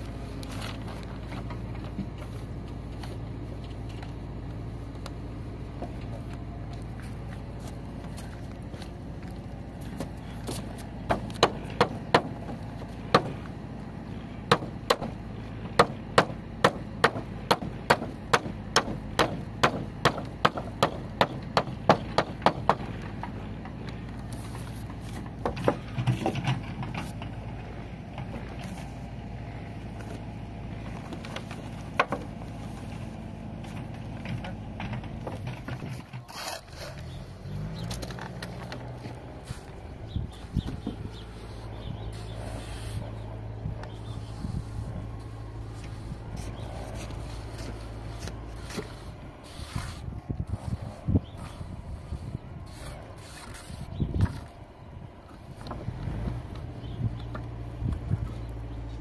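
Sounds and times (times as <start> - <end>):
sharp knocks: 11.1 - 12.5, 14.5 - 15.2, 15.8 - 22.9.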